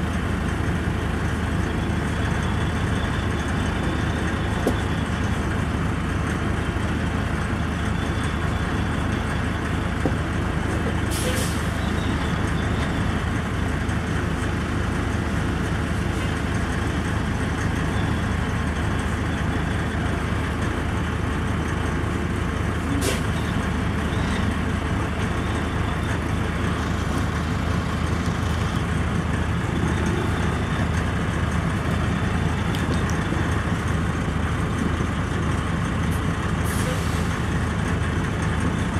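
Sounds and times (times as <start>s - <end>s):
diesel truck engine running: 0.0s - 38.9s.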